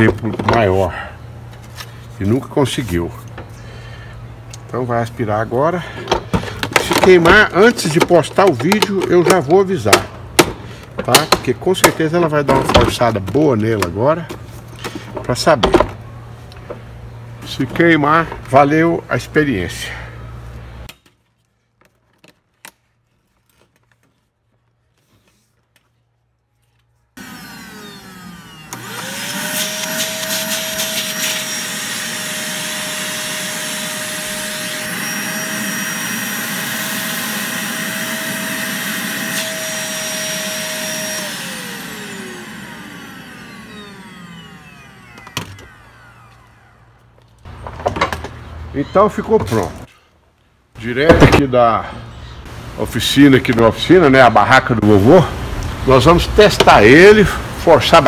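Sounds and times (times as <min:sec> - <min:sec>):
vacuum cleaner motor whine: 0:27.2 - 0:47.0.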